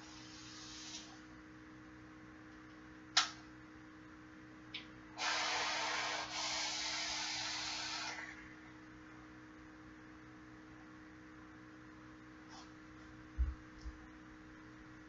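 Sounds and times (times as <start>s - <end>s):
rushing hiss of vape draw: 0.0s - 1.1s, 5.2s - 8.3s
sharp click: 3.2s - 3.4s.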